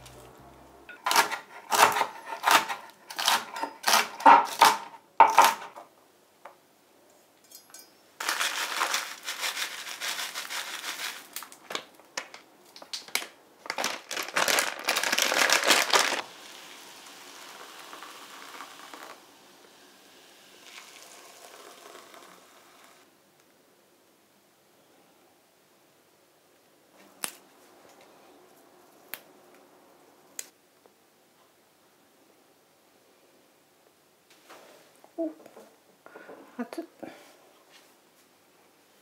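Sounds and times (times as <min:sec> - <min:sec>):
plastic bag crinkling: 0:08.2 - 0:16.3
liquid pouring into a bowl: 0:20.6 - 0:22.9.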